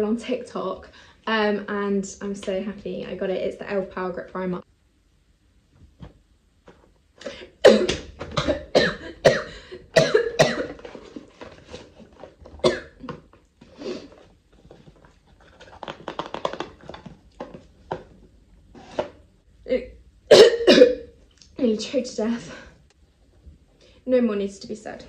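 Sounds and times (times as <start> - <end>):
woman coughing hard: 7.2 - 11.0, 12.6 - 13.2, 20.3 - 21.1.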